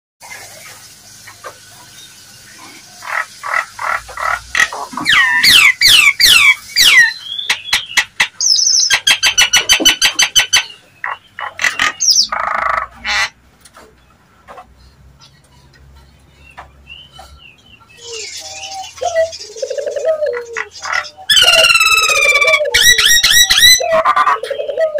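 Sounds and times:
myna calling: 0:03.0 - 0:13.4, 0:17.9 - 0:24.9.

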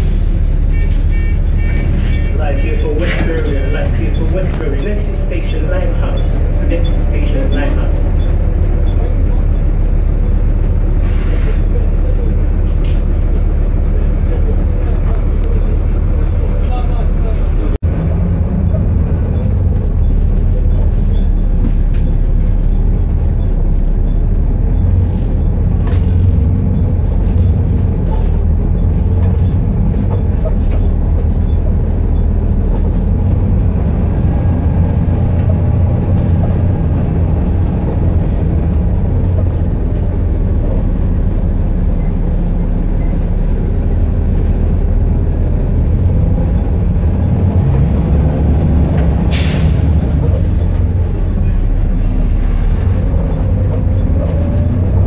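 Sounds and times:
bus diesel engine drone: 0:00.0 - 0:55.0
road noise: 0:00.0 - 0:55.0
bus body rattle: 0:11.6 - 0:55.0.

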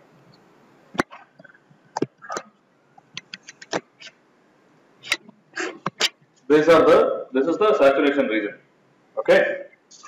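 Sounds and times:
stylus tapping on tablet: 0:01.0 - 0:02.4, 0:03.0 - 0:04.1.

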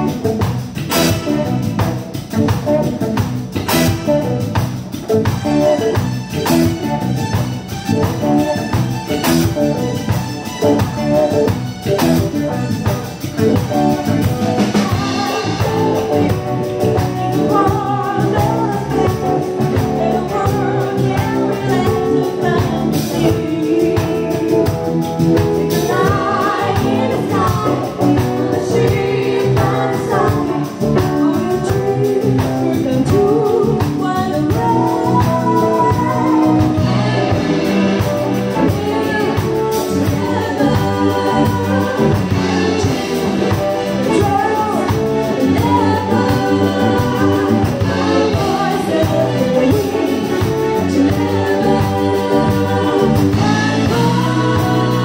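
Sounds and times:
song with singing and instruments: 0:00.0 - 0:55.0.

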